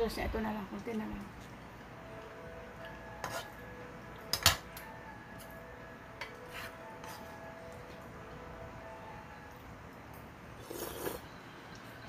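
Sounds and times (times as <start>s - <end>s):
metal utensils scraping frying pan: 3.2s - 3.6s, 6.2s - 7.3s.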